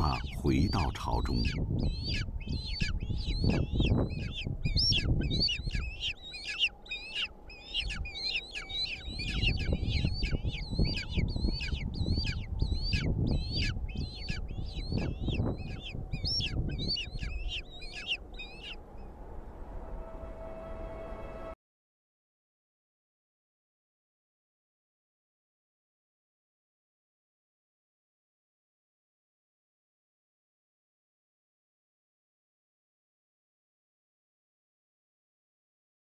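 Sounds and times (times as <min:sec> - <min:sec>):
low rumble: 0:01.2 - 0:20.2.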